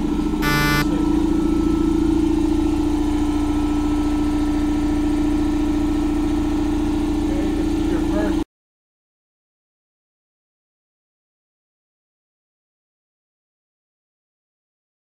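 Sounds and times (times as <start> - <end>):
dirt bike engine running: 0.4 - 0.8
short buzzy beep: 0.4 - 1.0.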